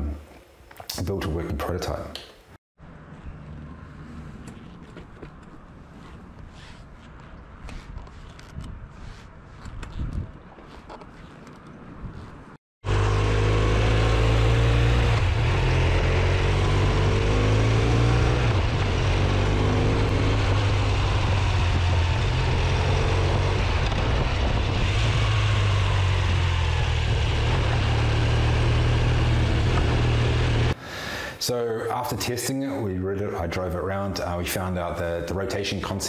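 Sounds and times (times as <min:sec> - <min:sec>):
wind and road rush: 0:02.8 - 0:30.8
motorcycle engine rumbling: 0:09.8 - 0:30.8.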